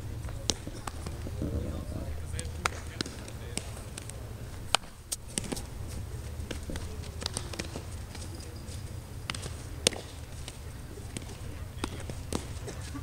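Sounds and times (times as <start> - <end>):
baseballs being hit and caught: 0.0 - 13.0
steady low rumble: 0.0 - 13.0.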